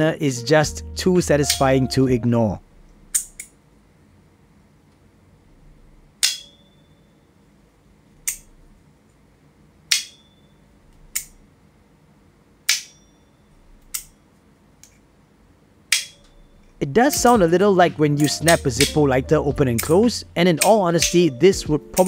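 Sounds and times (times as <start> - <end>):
brief high metallic ring: 10.1 - 10.6, 12.9 - 13.5.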